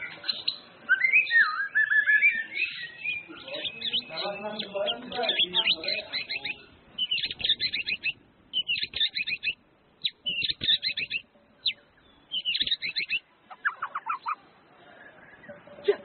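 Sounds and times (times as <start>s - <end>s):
songbird singing rapid chirps: 0.0s - 16.0s.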